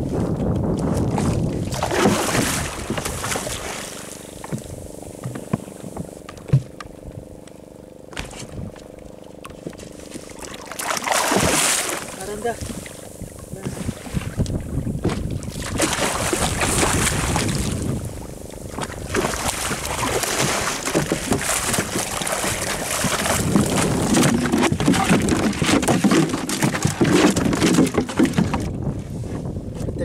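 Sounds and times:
wind on microphone: 0.0s - 3.9s, 11.4s - 30.0s
water lapping against hull: 0.0s - 30.0s
fish splashing and thrashing: 0.1s - 29.0s
knocks on wooden boat: 4.4s - 6.9s, 13.6s - 17.5s, 20.3s - 28.8s.

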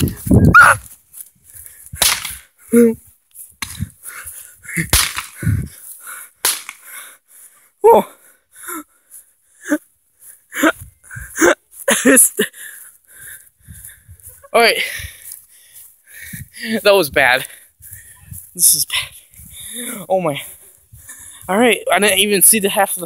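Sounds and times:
short pitched cries: 0.5s - 0.8s
sharp cracks: 2.0s - 2.5s, 3.6s - 3.9s, 4.8s - 5.5s, 6.4s - 7.0s.

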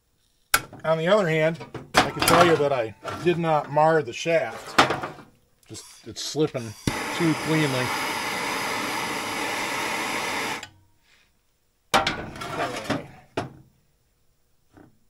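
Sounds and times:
hand tools clinking on metal: 2.0s - 3.4s
gas torch flame hissing: 6.6s - 10.6s.

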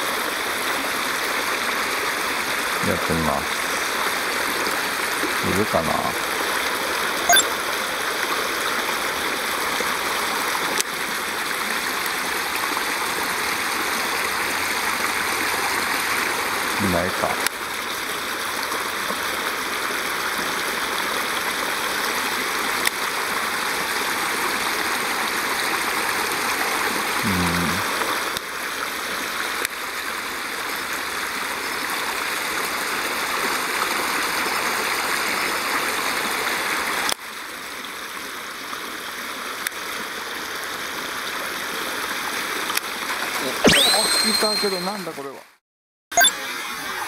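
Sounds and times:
brief low sound: 7.3s - 7.5s, 43.6s - 45.1s, 46.2s - 46.4s.

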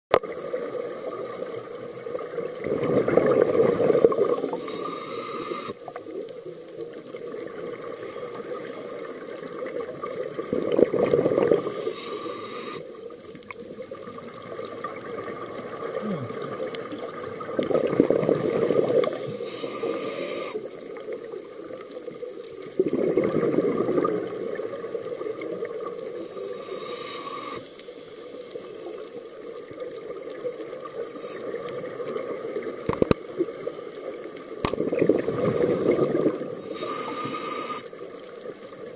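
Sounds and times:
regulator hiss on inhale: 0.3s - 1.8s, 4.1s - 6.0s, 11.4s - 13.2s, 18.4s - 20.8s, 26.1s - 29.0s, 30.9s - 32.0s, 35.6s - 38.2s
bubbling rush on exhale: 0.4s - 5.9s, 7.4s - 13.0s, 13.9s - 21.1s, 22.4s - 28.4s, 34.7s - 38.1s
faint steady tone: 4.4s - 6.9s.

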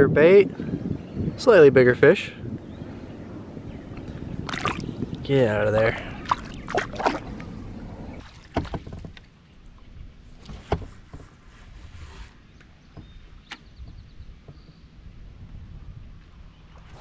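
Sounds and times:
wind rumble on microphone: 0.0s - 17.0s
water sloshing: 3.8s - 14.6s.

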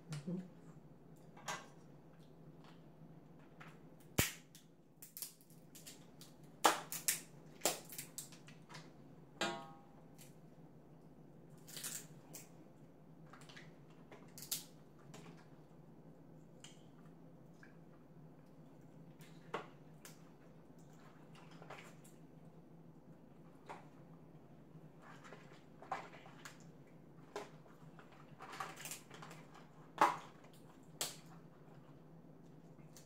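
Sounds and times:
crab shells cracking: 4.0s - 8.6s, 11.6s - 12.5s, 14.3s - 14.8s.

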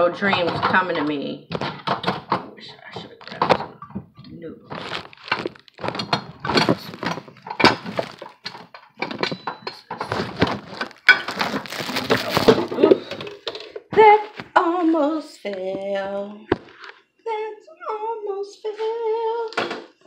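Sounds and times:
objects clattering and rustling: 0.0s - 15.9s.

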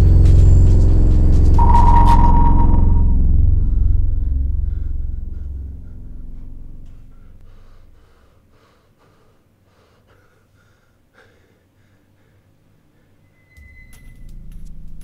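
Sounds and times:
low music rumble: 0.0s - 8.2s.

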